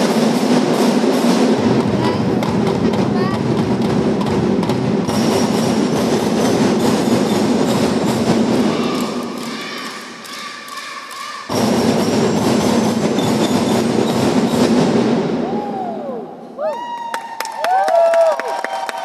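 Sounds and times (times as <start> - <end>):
drum band playing: 0.0 - 10.2, 11.5 - 15.6.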